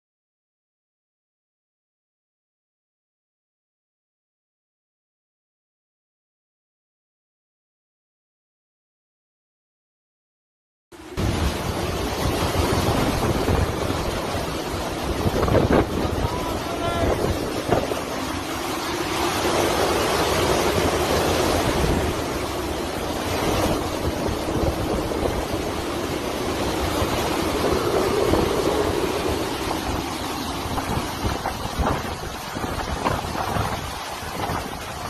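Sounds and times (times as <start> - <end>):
driving rain: 11.0 - 35.0
strong gusting wind: 11.0 - 35.0
wind buffeting microphone: 11.0 - 35.0.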